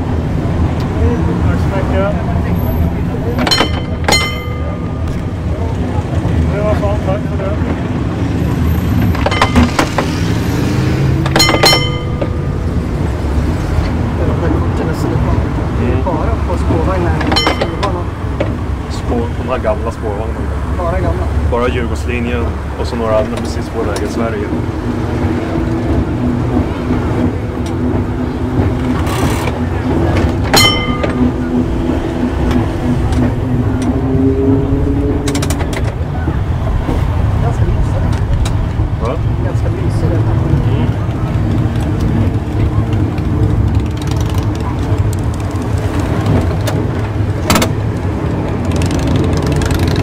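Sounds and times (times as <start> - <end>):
tram rumbling on rails: 0.0 - 50.0
tram bell ding: 3.2 - 6.6, 9.1 - 14.1, 17.2 - 20.5, 26.6 - 34.2
ringing metallic strikes: 3.4 - 5.6, 9.2 - 10.6, 11.2 - 13.5, 17.2 - 18.4, 30.5 - 33.2
high whine: 9.1 - 14.0.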